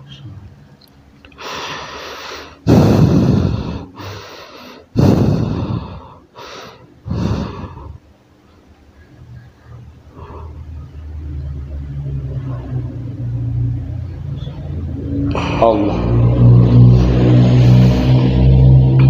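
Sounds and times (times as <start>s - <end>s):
man breathing heavily: 1.3s - 8.1s, 10.1s - 10.8s, 15.3s - 18.8s.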